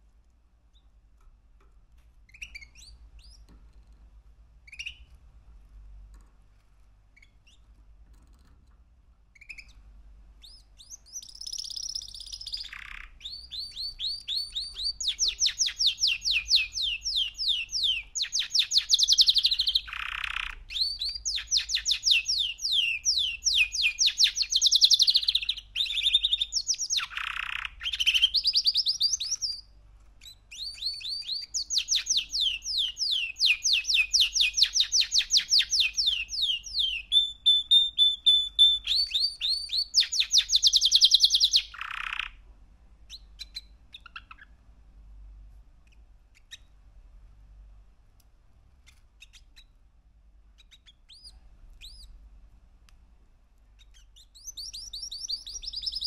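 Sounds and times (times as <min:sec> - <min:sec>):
canary singing trills: 0:02.2 - 0:03.8, 0:04.6 - 0:05.2, 0:07.1 - 0:07.7, 0:09.2 - 0:42.4, 0:43.0 - 0:44.6, 0:45.9 - 0:46.8, 0:48.8 - 0:49.8, 0:50.4 - 0:52.2, 0:53.7 - 0:56.0.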